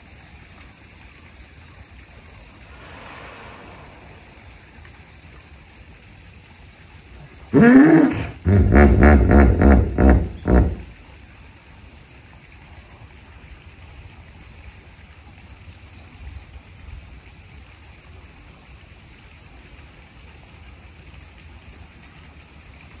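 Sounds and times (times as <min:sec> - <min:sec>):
soft hiss: 0:00.0 - 0:08.4
low rumble: 0:02.6 - 0:05.5.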